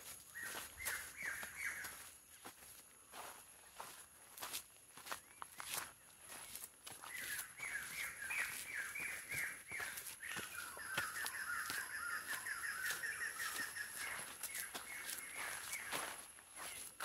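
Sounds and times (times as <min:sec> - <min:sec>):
forest bird calling: 0:00.0 - 0:02.6, 0:05.0 - 0:17.0
footsteps on trail: 0:00.0 - 0:17.0.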